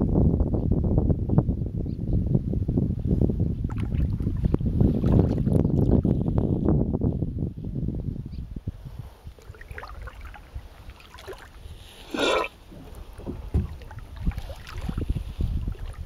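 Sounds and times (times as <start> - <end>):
wind on microphone: 0.0 - 16.0
water lapping against a hull: 3.6 - 6.7, 8.9 - 16.0
loud water splash: 9.4 - 15.1.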